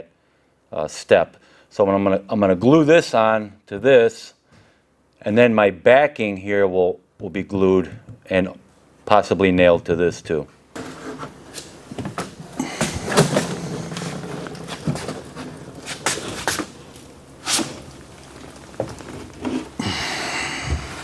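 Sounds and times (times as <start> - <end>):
wooden boxes scraping and shuffling: 10.7 - 21.0.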